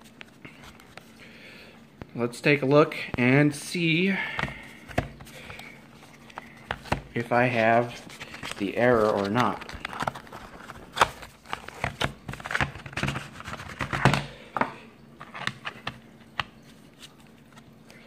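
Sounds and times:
plastic case handling: 4.3s - 17.7s.

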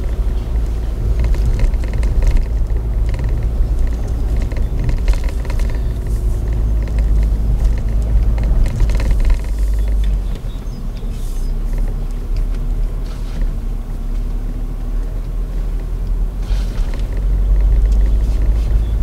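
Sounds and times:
car knocks and rattles: 0.0s - 14.7s, 15.8s - 19.0s
car engine and tyres rumbling: 0.0s - 19.0s.

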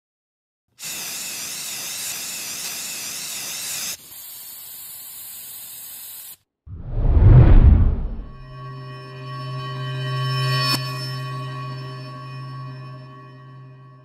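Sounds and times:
foam lance spraying hiss: 0.8s - 6.4s.

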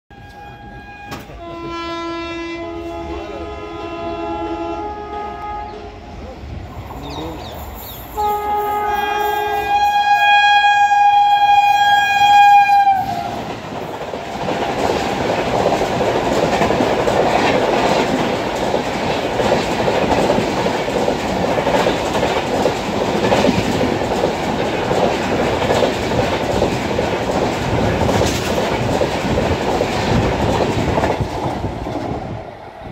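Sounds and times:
locomotive horn blast: 0.1s - 6.1s, 7.0s - 13.5s
train wheels clattering over rails: 13.0s - 32.9s.

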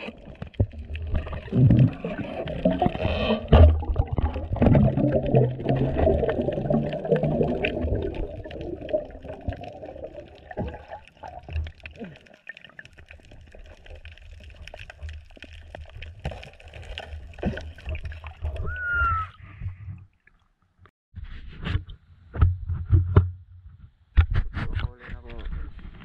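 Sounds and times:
water sloshing and gurgling: 0.0s - 20.9s
rising and falling whistle tone: 18.6s - 19.4s.

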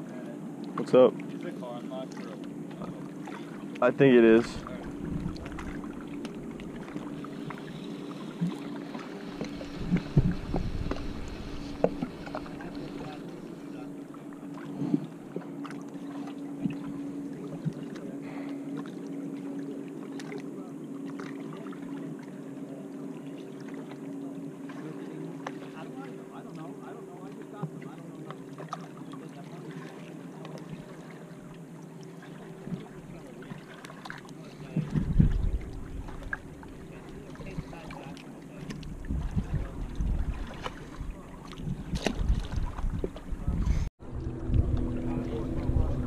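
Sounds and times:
low engine hum: 0.0s - 46.0s
wind buffeting microphone: 9.5s - 12.7s, 34.7s - 36.8s, 38.8s - 46.0s.

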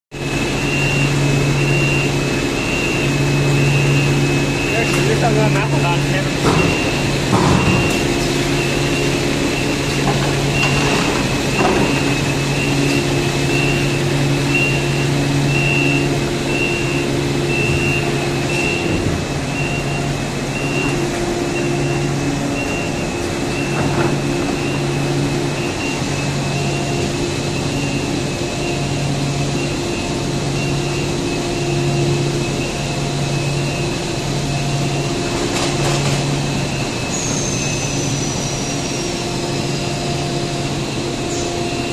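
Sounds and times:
production line machinery hum: 0.1s - 41.9s.

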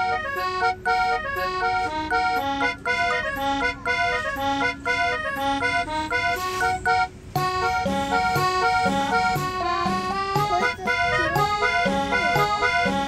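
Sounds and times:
accordion tune: 0.0s - 13.0s
repeating bass beat: 7.4s - 13.0s.

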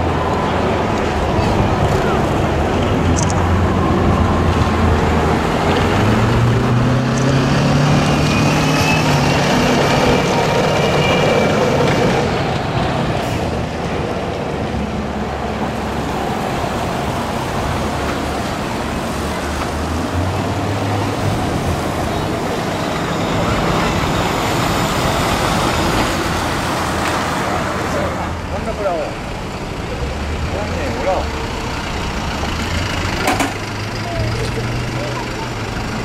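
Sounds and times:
heavy vehicles driving past: 0.0s - 36.0s.

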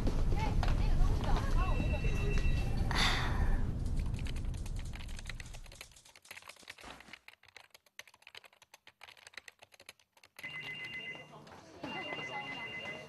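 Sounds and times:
typing on computer keyboard: 3.7s - 11.2s
electronic telephone ring: 10.4s - 13.0s.

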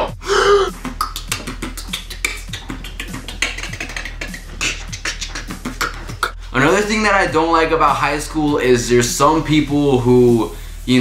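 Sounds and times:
low thumps: 0.0s - 8.6s
beatboxing clicks and pops: 0.7s - 6.4s.

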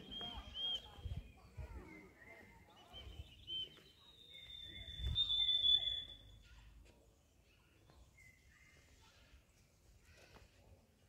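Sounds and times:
birds whistling: 1.9s - 6.2s.

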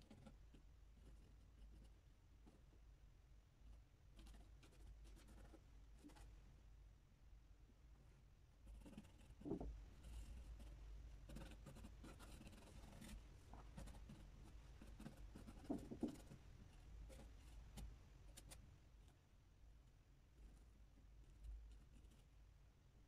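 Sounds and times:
low steady hum: 0.0s - 23.0s
brush scratching on panel: 8.7s - 18.6s.

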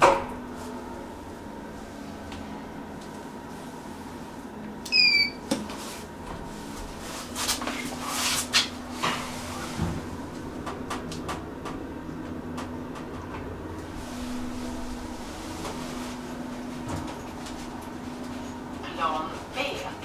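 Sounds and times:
low steady elevator hum: 0.0s - 20.0s
short electronic beep: 4.9s - 5.4s
elevator doors clicking and clunking: 9.2s - 13.9s.

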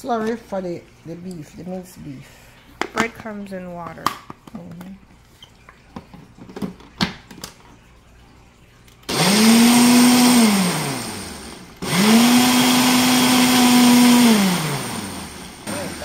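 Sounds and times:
blender motor whirring: 9.1s - 16.0s.

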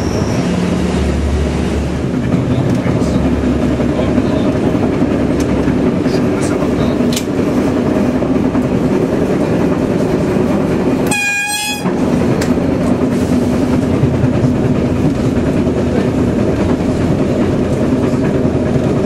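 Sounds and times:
train rumbling: 0.0s - 19.0s
wheels clattering on rails: 0.0s - 19.0s
train horn blast: 11.0s - 12.0s.

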